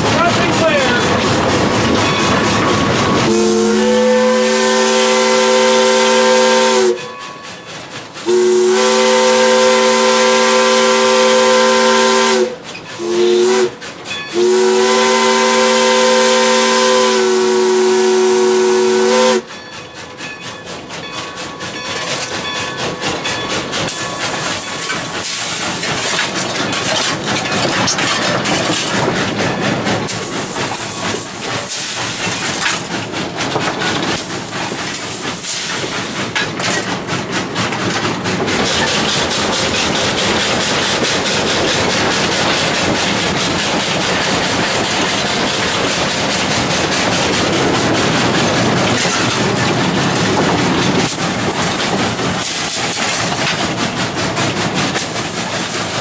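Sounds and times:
rhythmic rattling clatter: 0:00.0 - 0:03.3, 0:19.5 - 0:56.0
steam hiss: 0:00.0 - 0:27.4, 0:28.8 - 0:56.0
steam locomotive chime whistle: 0:02.0 - 0:25.1.

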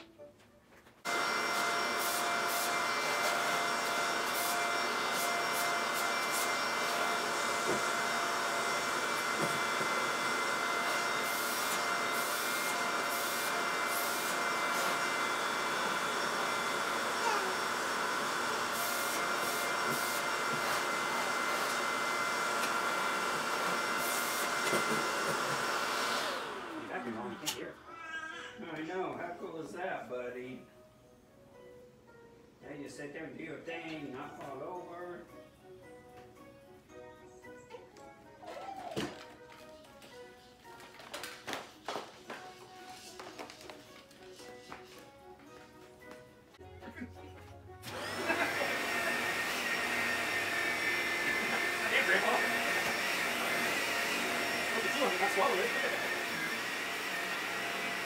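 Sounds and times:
vacuum cleaner whining: 0:01.0 - 0:27.9, 0:47.8 - 0:58.0.

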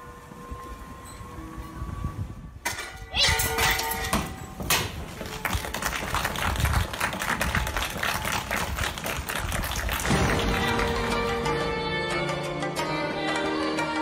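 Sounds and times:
music with held notes: 0:10.1 - 0:14.0.

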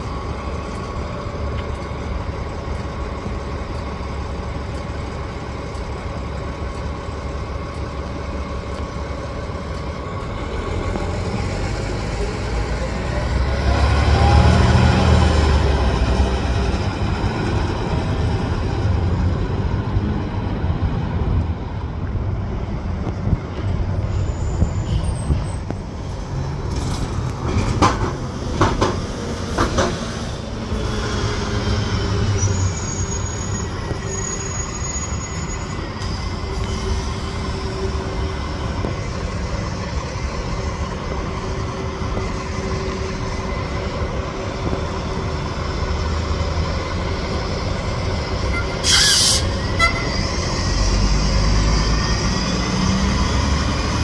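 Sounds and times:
train rumbling: 0:00.0 - 0:54.0
high wheel squeal: 0:23.9 - 0:25.8, 0:30.2 - 0:38.8, 0:47.9 - 0:53.4.

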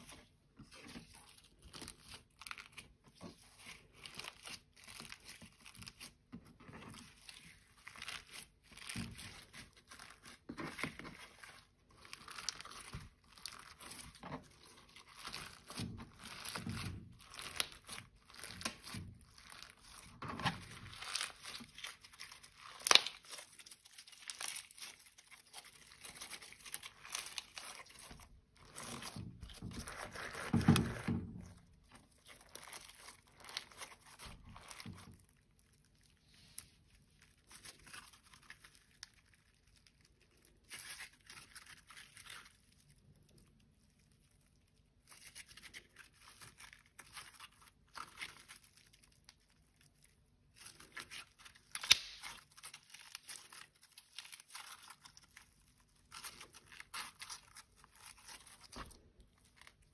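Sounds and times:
slime squelching and crackling: 0:00.0 - 0:59.9.

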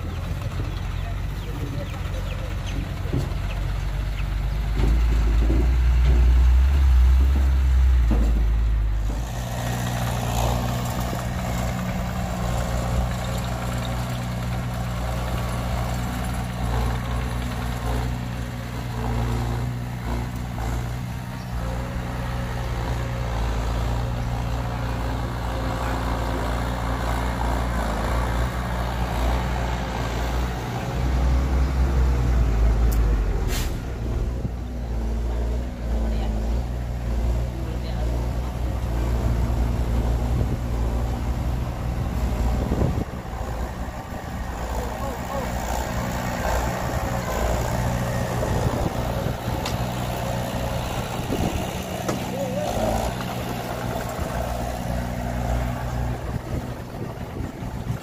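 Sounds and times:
heavy diesel engines droning: 0:00.0 - 0:58.0
short hiss: 0:33.5 - 0:33.9.

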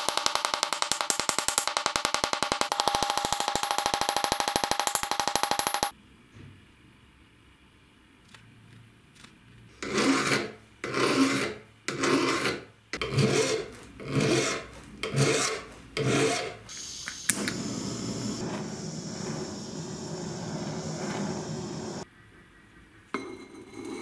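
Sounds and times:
hand file rasping on steel: 0:09.8 - 0:16.6
gas torch flame hissing: 0:16.2 - 0:22.0
torch click: 0:16.7 - 0:22.0.

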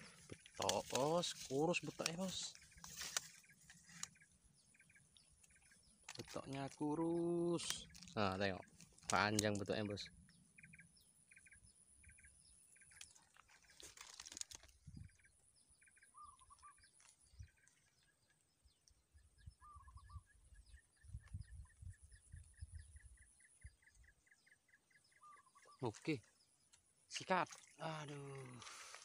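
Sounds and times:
birds chirping: 0:00.0 - 0:29.0
brief rustle: 0:00.6 - 0:04.1, 0:13.0 - 0:14.9
bird warbled calls: 0:14.9 - 0:17.9, 0:19.5 - 0:20.8, 0:24.7 - 0:26.4.

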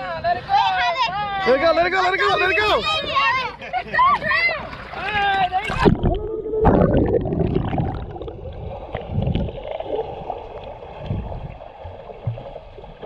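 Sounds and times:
muffled underwater sloshing: 0:03.9 - 0:13.0
low underwater thuds: 0:05.6 - 0:13.0.

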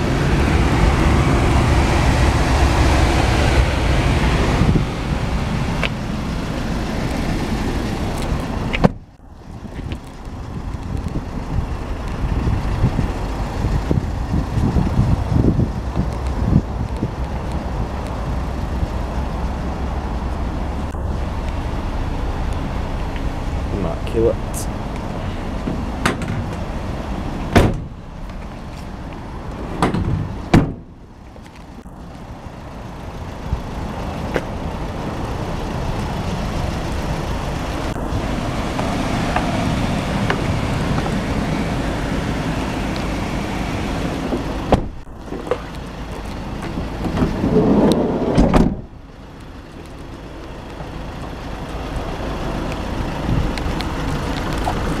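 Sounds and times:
noisy outdoor background: 0:00.0 - 0:55.0
van door rumbling: 0:25.6 - 0:28.6, 0:29.6 - 0:31.0, 0:44.0 - 0:49.0
van door knocks and thuds: 0:27.5 - 0:28.0, 0:29.8 - 0:30.9, 0:44.7 - 0:45.5, 0:48.3 - 0:48.9
van door shutting: 0:27.5 - 0:28.0, 0:29.6 - 0:30.9, 0:44.7 - 0:45.6, 0:47.0 - 0:48.9.

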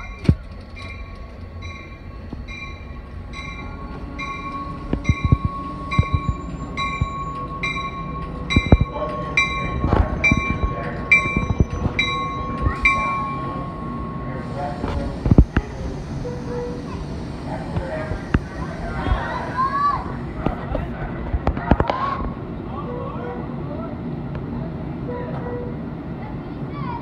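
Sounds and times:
heavy train knocks: 0:00.0 - 0:13.8
locomotive bell ringing: 0:00.0 - 0:14.9.

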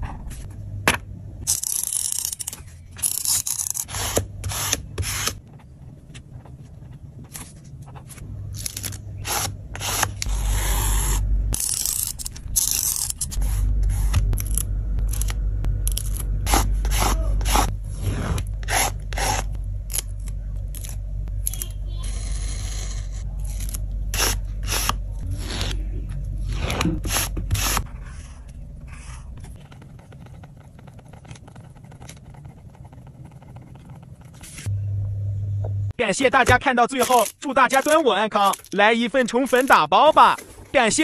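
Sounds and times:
stickers peeled and rubbed: 0:01.5 - 0:05.4, 0:06.4 - 0:34.7
craft knife cutting paper: 0:08.6 - 0:20.1.

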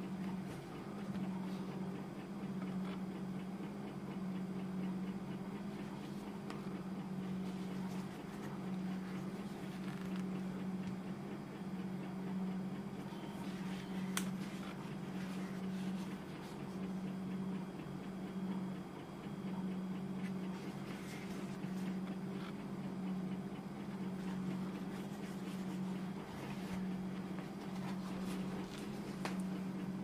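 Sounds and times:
pulsing low hum: 0:00.0 - 0:30.0.

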